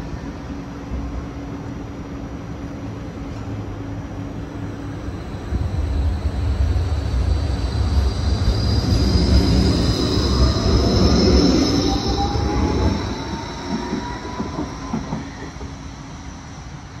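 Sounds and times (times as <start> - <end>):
tram wheels rumbling on rail: 0.0 - 17.0
tram motor whine rising: 3.8 - 17.0
high-pitched wheel squeal: 7.8 - 15.8.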